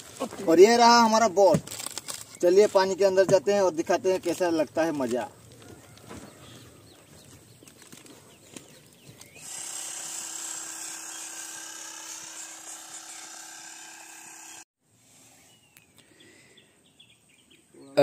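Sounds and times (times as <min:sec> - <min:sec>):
electric air pump running: 0:09.2 - 0:15.6.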